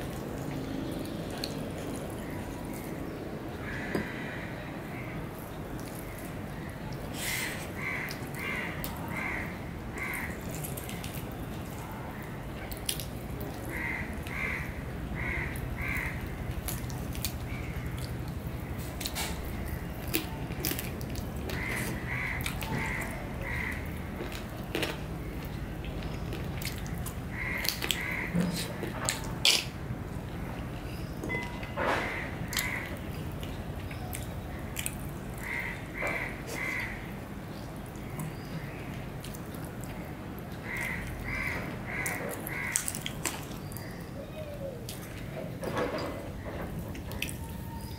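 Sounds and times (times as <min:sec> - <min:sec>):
soft eating sounds: 0:00.0 - 0:47.9
bird calling: 0:40.6 - 0:47.9.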